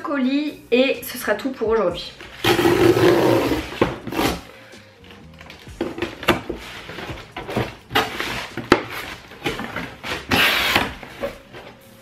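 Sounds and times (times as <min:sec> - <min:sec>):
cardboard tearing: 0:02.4 - 0:04.5, 0:05.8 - 0:11.6
knife cutting cardboard box: 0:02.4 - 0:04.5, 0:05.8 - 0:11.8.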